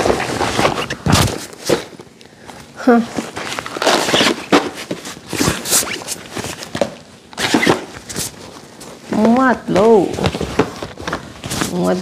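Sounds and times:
fabric backpack rustling: 3.0s - 6.8s.

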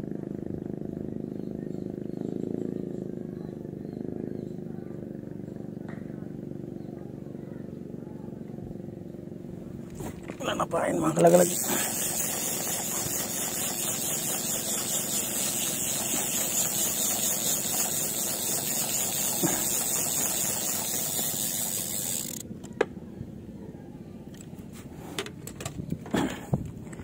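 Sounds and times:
engine running with hiss: 11.2s - 22.5s.

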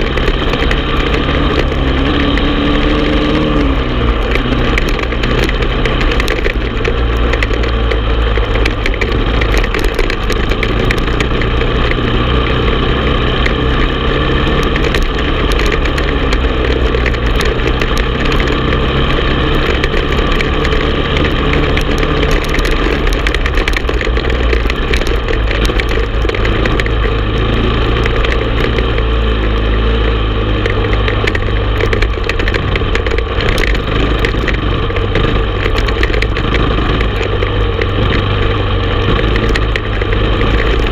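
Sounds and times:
quad engine running: 0.0s - 40.9s.

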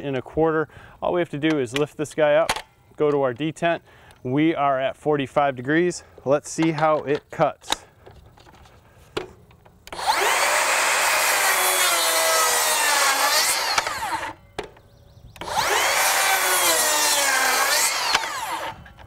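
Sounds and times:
circular saw cutting wood: 9.9s - 14.4s, 15.4s - 18.9s.

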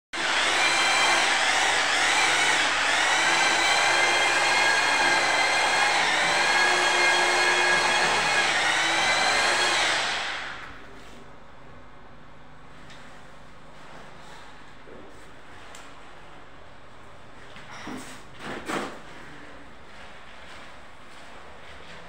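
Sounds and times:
angle grinder whining: 0.2s - 10.7s.

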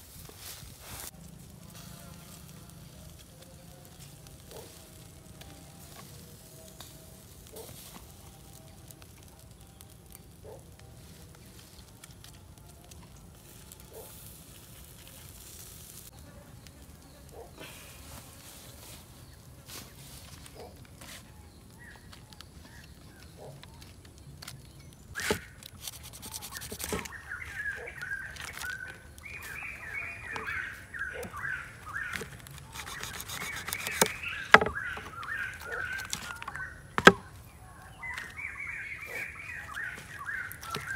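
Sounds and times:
warbling bird calls: 25.0s - 40.9s
knife cutting and knocking: 25.2s - 27.1s, 32.1s - 34.8s
small ticks: 25.6s - 36.7s.

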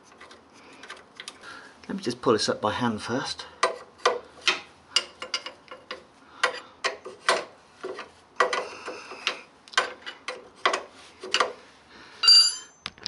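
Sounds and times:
spanner clinking on nut: 12.2s - 13.0s.

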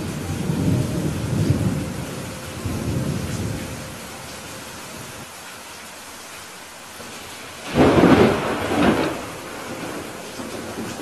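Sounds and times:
rolling thunder: 0.0s - 4.1s, 7.6s - 11.0s
rain hiss: 0.0s - 11.0s.

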